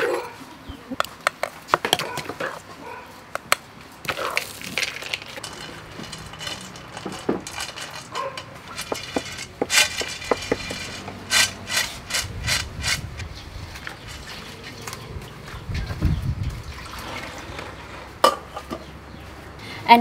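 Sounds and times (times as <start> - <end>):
hand scraping and rubbing food: 4.1 - 15.0.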